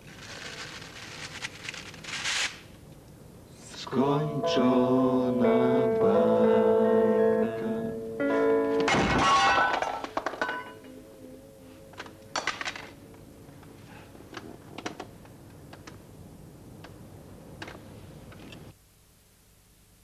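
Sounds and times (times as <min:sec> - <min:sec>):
acoustic guitar chord ringing: 0:04.0 - 0:13.9.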